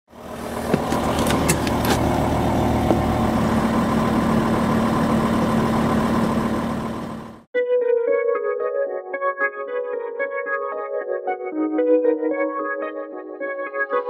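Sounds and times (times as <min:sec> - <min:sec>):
van engine idling: 0:00.1 - 0:07.5.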